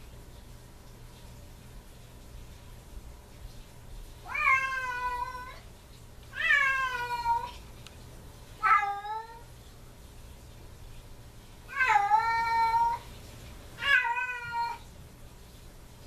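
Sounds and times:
cat crying: 4.3s - 5.6s, 6.4s - 7.6s, 8.6s - 9.5s, 11.7s - 13.0s, 13.8s - 14.8s.

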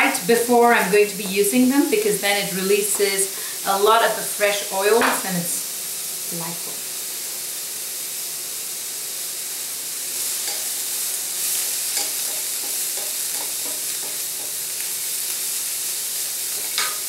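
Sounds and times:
vegetables sizzling in a wok: 0.0s - 17.0s
spatula scraping and knocking pan: 11.7s - 14.7s, 16.6s - 17.0s.

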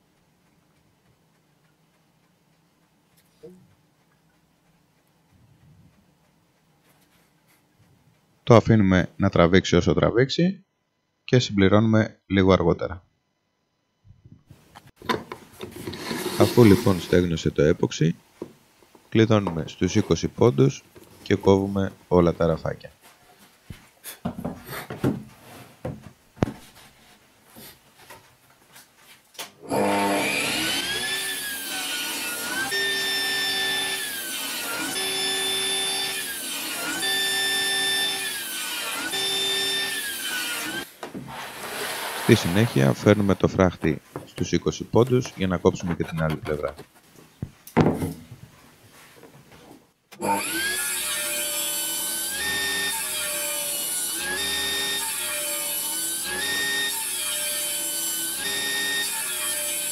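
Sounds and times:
table saw ripping wood: 15.6s - 17.4s, 29.6s - 43.4s, 50.2s - 59.9s.

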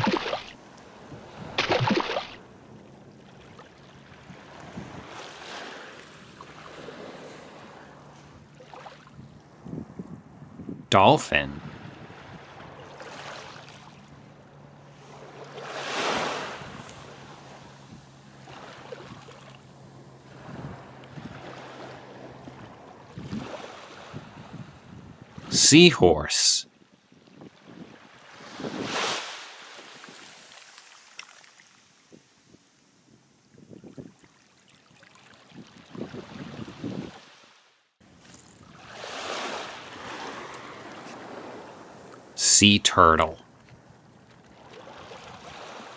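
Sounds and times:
rushing wash of water: 0.0s - 0.6s, 1.4s - 2.4s
ocean waves washing in: 0.0s - 10.0s, 10.9s - 26.6s, 27.5s - 32.5s, 38.7s - 43.4s, 44.6s - 45.9s.

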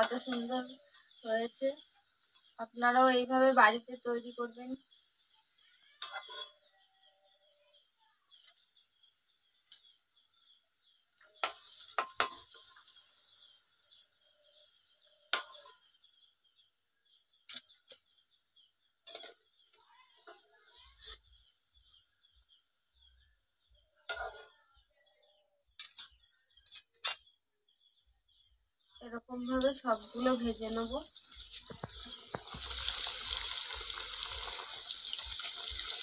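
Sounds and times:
metal utensils clinking on pan: 0.0s - 0.7s, 6.0s - 6.7s, 11.3s - 12.9s, 15.3s - 15.9s, 19.0s - 19.5s, 24.1s - 24.6s, 25.8s - 27.3s
oil sizzling in a pan: 0.0s - 24.8s, 29.3s - 36.0s.

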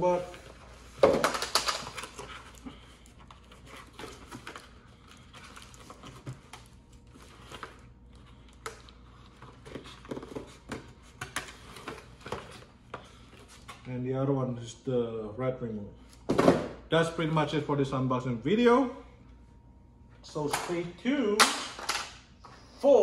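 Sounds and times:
packaging rustling: 1.2s - 10.6s.

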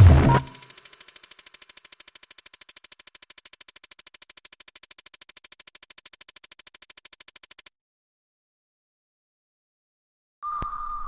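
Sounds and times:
rapid pulsing electronic music: 0.0s - 7.7s.

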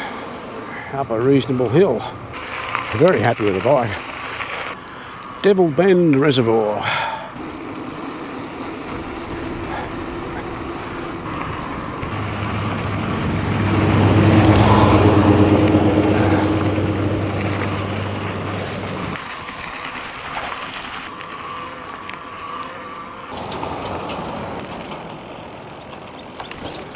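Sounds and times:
vehicle passing on gravel: 0.0s - 26.9s
low steady hum: 7.1s - 19.2s.

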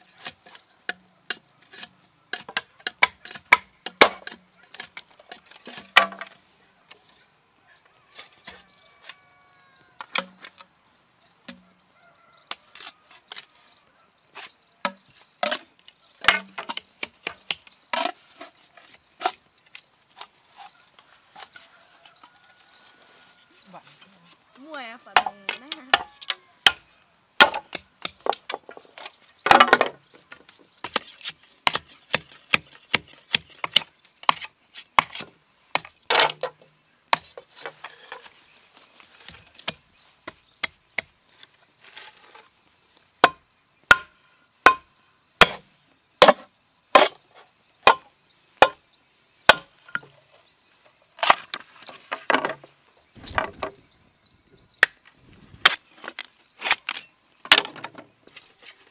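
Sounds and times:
machete chopping bamboo: 10.0s - 10.6s, 25.1s - 26.8s, 27.4s - 28.7s, 30.8s - 36.5s, 37.1s - 37.4s, 43.2s - 45.6s, 46.2s - 47.2s, 47.8s - 48.8s, 49.5s - 50.1s.

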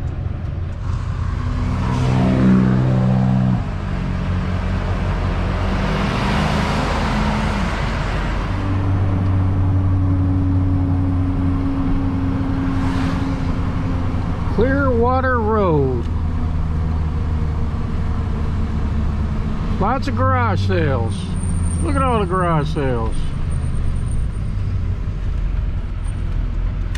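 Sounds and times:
road noise: 0.0s - 26.9s
truck engine accelerating: 0.0s - 26.9s
vehicle rushing past: 0.8s - 15.0s.

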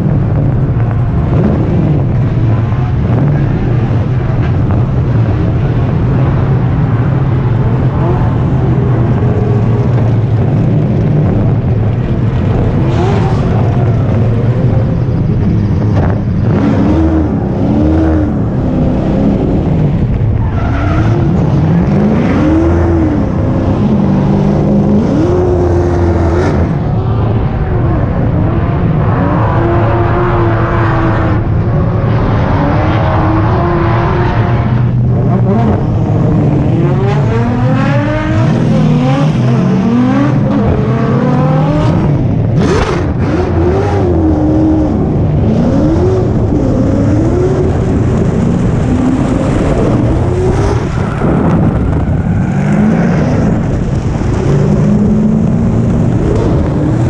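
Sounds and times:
car engine rumble: 0.0s - 57.0s
engines revving: 0.0s - 57.0s
tyres skidding: 0.1s - 41.8s.

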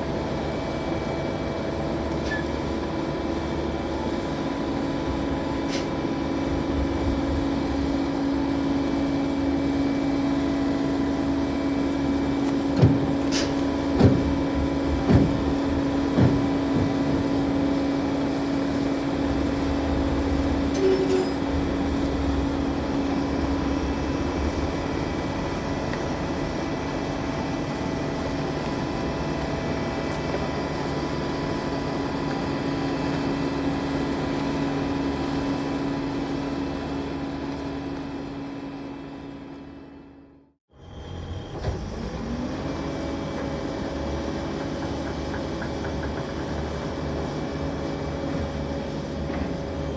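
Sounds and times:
crane diesel engine running: 0.0s - 49.9s
knocks: 15.0s - 15.4s.

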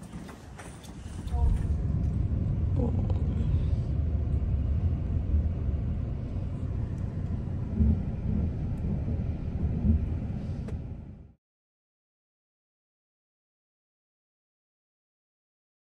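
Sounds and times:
car cabin rumble: 1.0s - 11.4s.

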